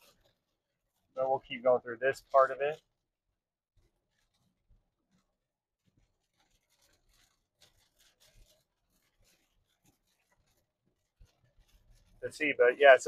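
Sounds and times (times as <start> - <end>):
faint ticks and rustles: 3.8 - 13.0.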